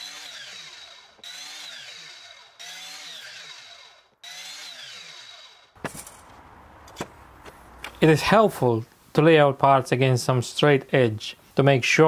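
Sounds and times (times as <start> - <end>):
mitre saw winding down: 0.0 - 5.8.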